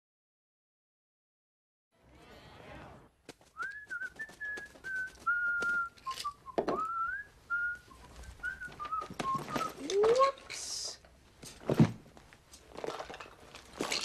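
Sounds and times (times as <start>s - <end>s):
knocks and rustles of handling: 3.3s - 7.0s, 8.0s - 10.7s, 11.4s - 14.0s
person whistling a tune: 3.6s - 9.8s.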